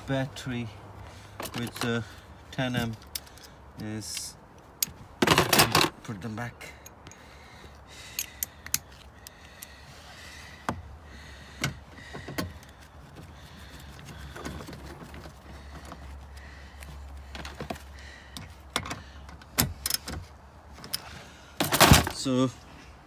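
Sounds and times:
socket wrench clicking: 8.1s - 9.7s.

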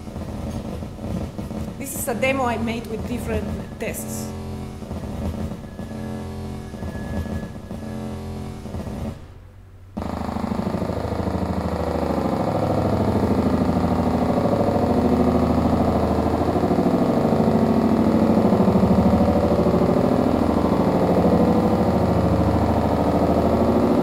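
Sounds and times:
fluttering electronic noise: 10.0s - 24.0s.

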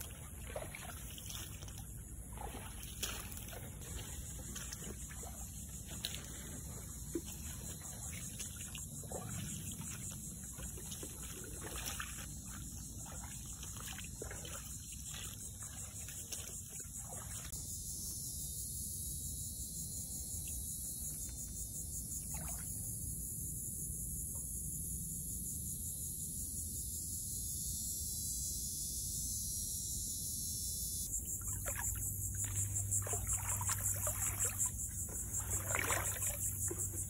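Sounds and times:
footsteps wading through water: 0.0s - 17.6s, 22.2s - 22.7s, 31.1s - 37.0s
high-pitched insect chorus: 0.0s - 37.0s.

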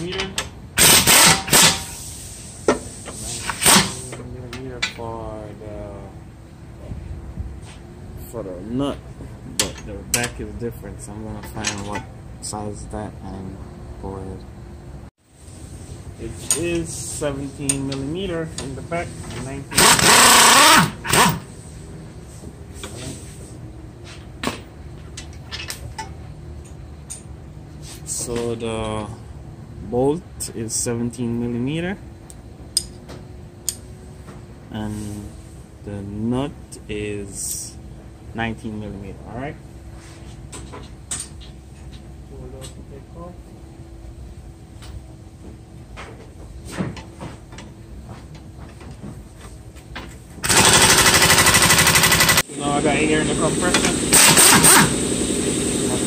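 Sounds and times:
pneumatic impact wrench hammering: 0.8s - 4.2s, 19.7s - 21.5s, 50.4s - 52.5s, 53.6s - 55.2s.

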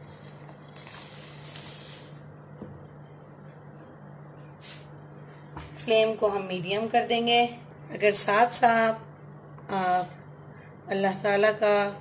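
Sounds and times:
dry noodles sliding into pan: 0.0s - 2.3s
wooden spoon scraping: 0.0s - 2.3s
steady low hum: 0.0s - 12.0s.

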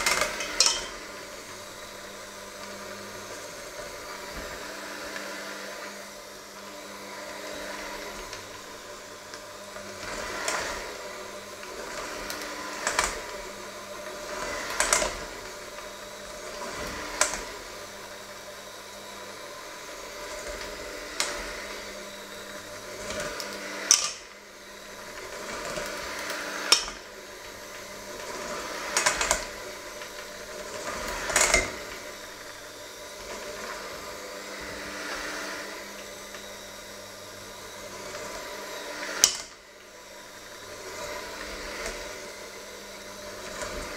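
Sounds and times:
electric hand mixer running: 0.0s - 43.9s
beaters clattering on metal bowl: 0.2s - 1.0s.

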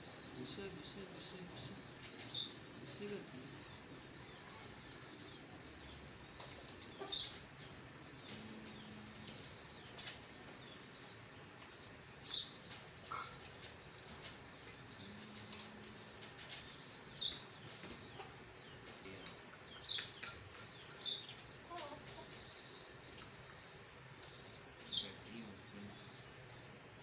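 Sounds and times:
small birds chirping: 0.0s - 27.0s.

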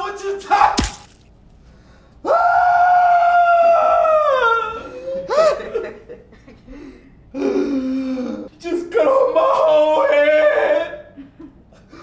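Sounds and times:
man crying out: 7.4s - 11.2s.

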